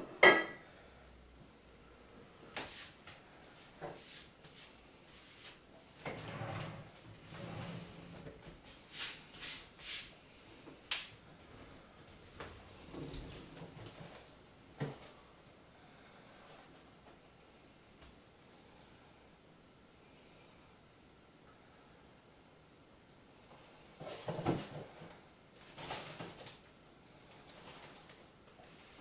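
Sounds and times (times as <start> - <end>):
things shifted inside cabinets: 5.4 - 9.7, 11.4 - 15.2, 24.0 - 26.6
cabinet doors and drawers opening: 6.0 - 8.6, 12.5 - 14.3
clatters and rustling: 24.0 - 26.6.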